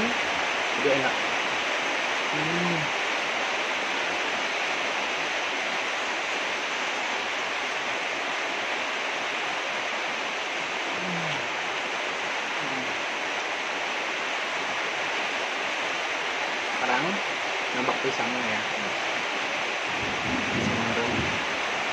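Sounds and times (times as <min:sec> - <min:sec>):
steady rain: 0:00.0 - 0:21.9
person humming: 0:02.3 - 0:02.9, 0:10.9 - 0:11.5, 0:12.6 - 0:13.0.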